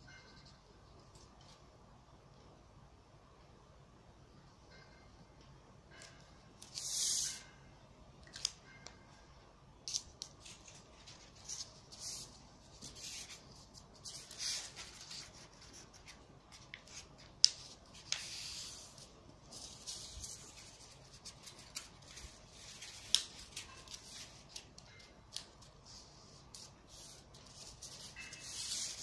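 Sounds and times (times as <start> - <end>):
paper rustling and sliding: 9.9 - 24.7, 25.3 - 29.0
sharp clicks of paper creasing: 19.8 - 25.7.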